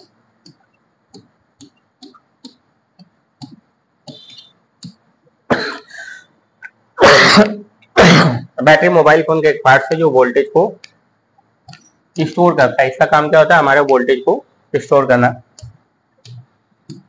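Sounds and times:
marker writing on glass board: 0:00.0 - 0:05.1, 0:15.4 - 0:17.0
man coughing: 0:05.5 - 0:06.2, 0:07.0 - 0:08.5.

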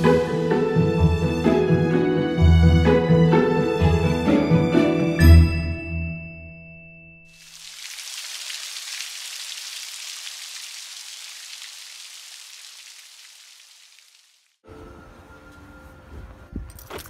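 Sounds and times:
rain on wet pavement: 0:07.4 - 0:14.6.

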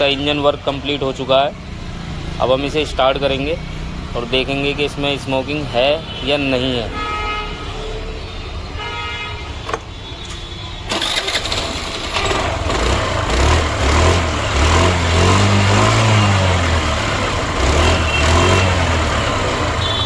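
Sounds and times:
scooter engine starting and revving: 0:10.9 - 0:20.0.

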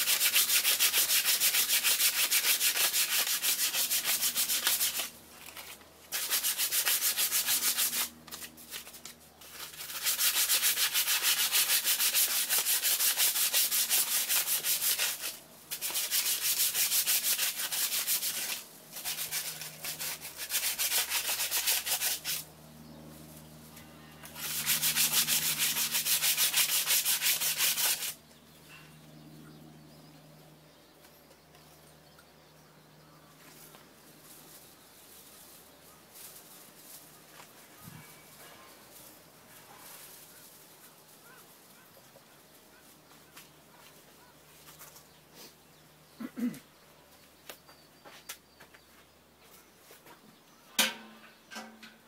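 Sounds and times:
sandpaper rubbing on metal: 0:00.0 - 0:22.5, 0:24.4 - 0:28.2.

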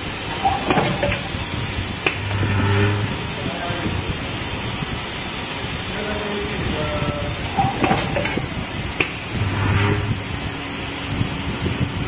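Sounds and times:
low even hum: 0:00.0 - 0:03.8, 0:09.2 - 0:10.5
machine mechanical hiss: 0:00.0 - 0:12.0
sharp machine clacks: 0:00.3 - 0:03.1.

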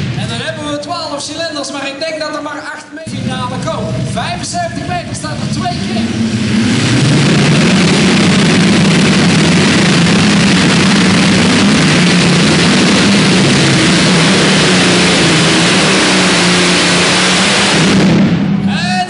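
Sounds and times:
tractor engine at full load: 0:00.0 - 0:00.5, 0:03.1 - 0:18.9.

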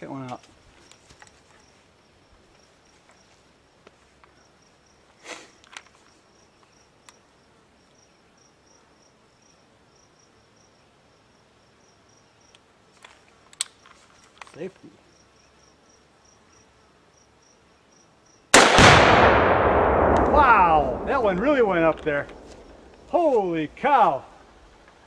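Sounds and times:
insect chirping: 0:00.8 - 0:18.5, 0:20.8 - 0:25.0
small clicks: 0:12.5 - 0:14.9.

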